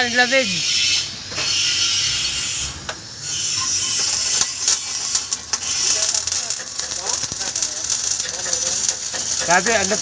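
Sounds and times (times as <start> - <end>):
arc welding crackling sizzle: 0.0 - 10.0.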